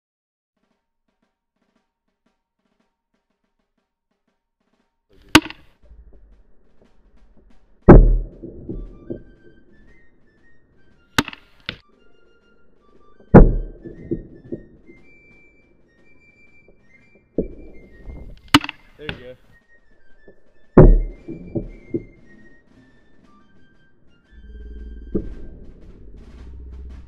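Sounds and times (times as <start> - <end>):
faint background music: 4.8 - 27.0
grenade launcher thunks: 5.2 - 5.7, 7.9 - 9.0, 11.2 - 11.8, 18.2 - 19.4, 20.8 - 22.1.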